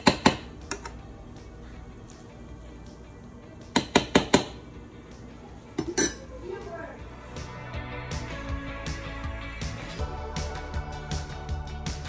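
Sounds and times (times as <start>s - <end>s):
quiet background music: 0.0s - 12.0s
metal spoon clinking against bowl: 5.8s - 6.3s.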